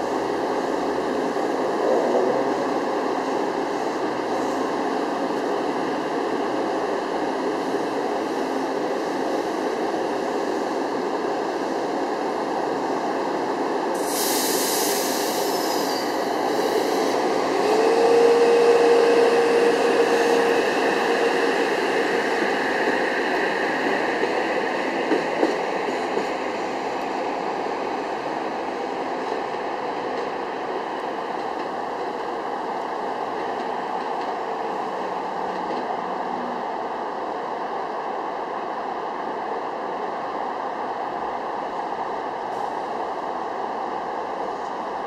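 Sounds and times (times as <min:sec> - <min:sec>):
air hiss: 0:13.9 - 0:17.4
train wheels rushing: 0:13.9 - 0:28.2.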